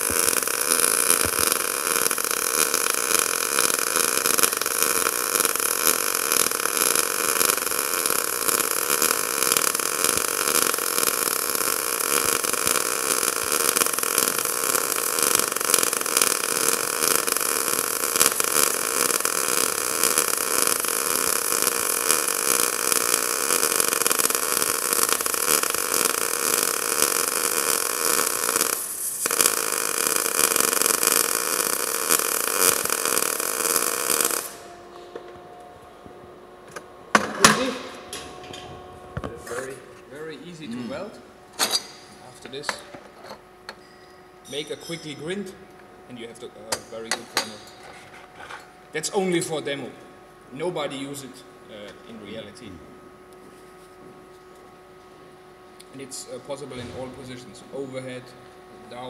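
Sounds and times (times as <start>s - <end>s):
welding arc hissing: 0.0s - 34.8s, 36.7s - 38.7s.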